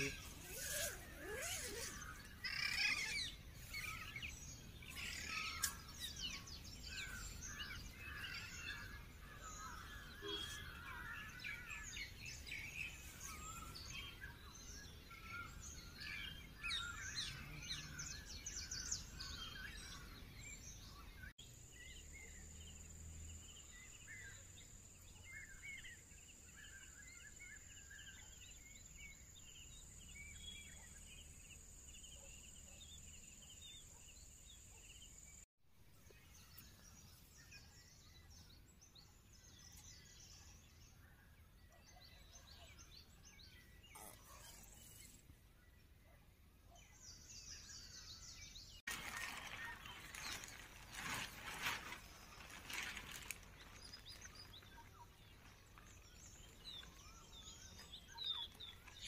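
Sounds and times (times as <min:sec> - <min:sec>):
birds chirping: 0:00.0 - 0:35.4, 0:36.0 - 0:59.0.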